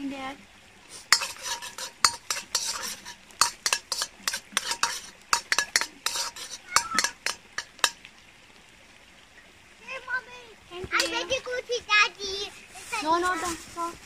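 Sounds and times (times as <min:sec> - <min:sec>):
metal utensil scraping a pot: 0:00.9 - 0:08.0
metallic clinks against cookware: 0:01.1 - 0:08.0.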